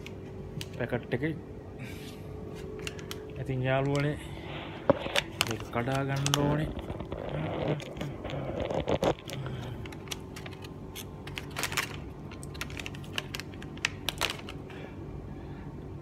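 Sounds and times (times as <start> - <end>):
steady low hum: 0.0 - 16.0
paper packet crinkling: 4.8 - 14.8.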